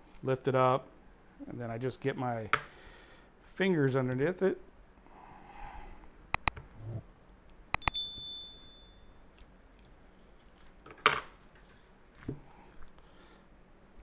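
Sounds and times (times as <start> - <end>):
mouse clicks: 6.3 - 6.6
bright bell ding: 7.8 - 9.1.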